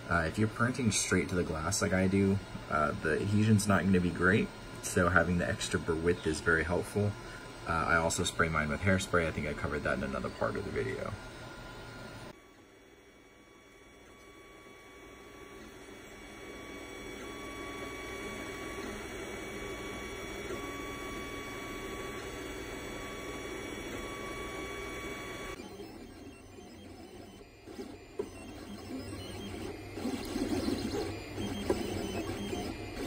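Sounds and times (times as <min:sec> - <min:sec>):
stepper motors whining: 0:13.0 - 0:33.0.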